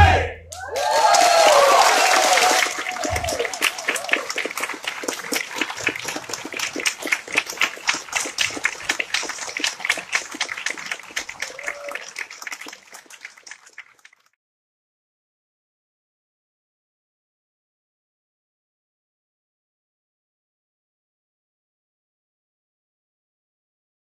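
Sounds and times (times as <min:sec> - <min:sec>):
audience cheering: 0:00.0 - 0:13.6
audience applauding: 0:00.5 - 0:14.3.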